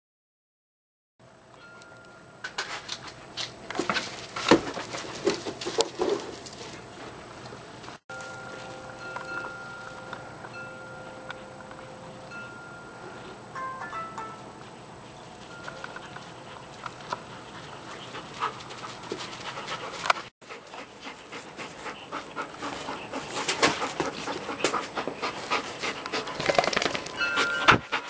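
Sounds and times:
dogs panting: 8.2s - 13.4s, 14.5s - 28.0s.

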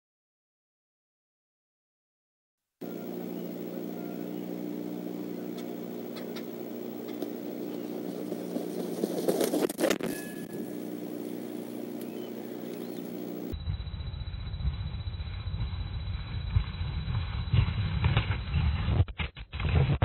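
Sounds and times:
steady low hum: 2.8s - 19.0s
rustle and wing noise: 2.9s - 13.6s
bell-like ring: 10.1s - 10.8s.

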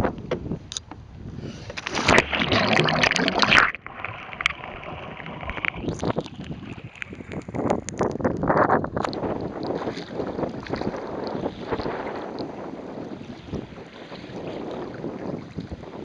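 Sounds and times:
water sloshing and splashing: 1.7s - 12.6s
wind buffeting microphone: 4.0s - 16.0s.

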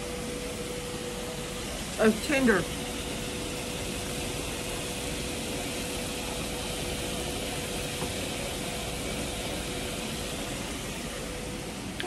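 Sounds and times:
air fryer fan whooshing: 0.0s - 12.0s
constant hum: 0.0s - 12.0s.

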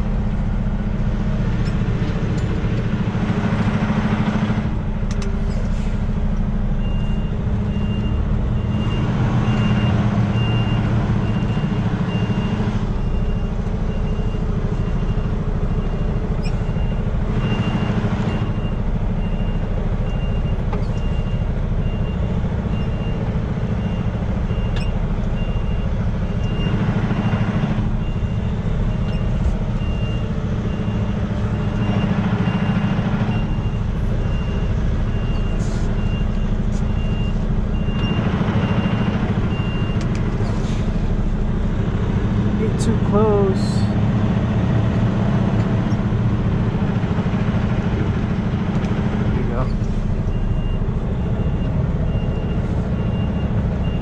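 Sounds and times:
diesel truck engine running: 0.0s - 54.0s
reversing alarm beeping: 6.8s - 40.1s, 50.3s - 54.0s.

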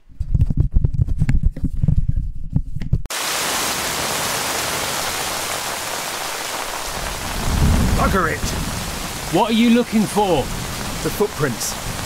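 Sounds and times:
heavy rain hissing: 3.1s - 12.0s
low irregular thumps: 6.8s - 9.4s.

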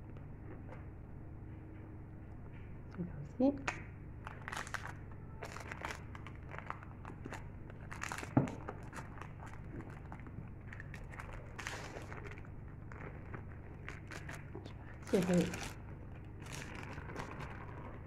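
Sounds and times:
baking parchment crinkling: 4.2s - 18.0s.

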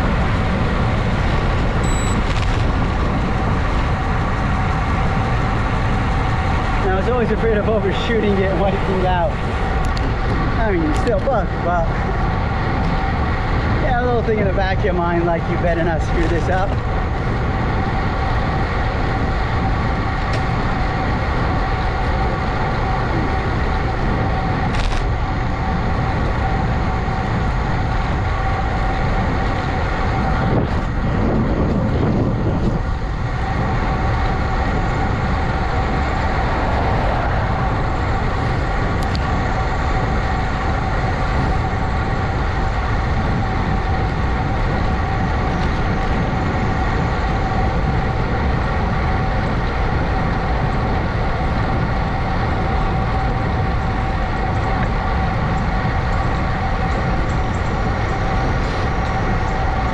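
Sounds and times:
constant tonal whine: 0.0s - 59.9s
wind and road noise: 0.0s - 59.9s.

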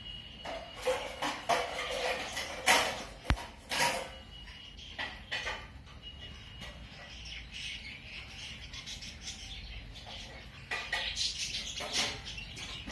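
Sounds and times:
budgerigars chattering and chirping: 4.5s - 12.9s.

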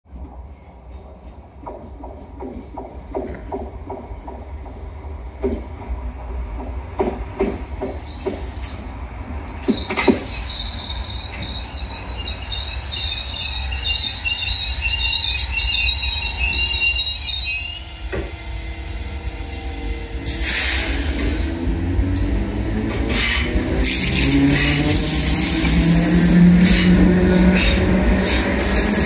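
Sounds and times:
train running noise: 0.1s - 29.0s
train wheels squealing: 7.0s - 21.5s, 23.1s - 29.0s.

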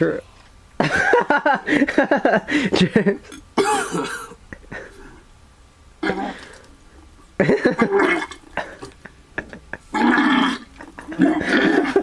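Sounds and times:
person gurgling in throat: 6.0s - 6.4s, 7.7s - 8.9s, 9.9s - 12.0s.

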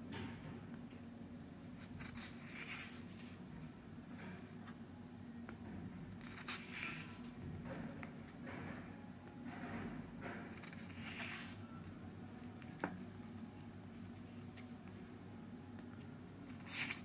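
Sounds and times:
low steady hum: 0.0s - 17.0s
paper pages turning: 1.8s - 3.4s, 6.2s - 7.4s, 10.5s - 11.7s, 16.4s - 17.0s.

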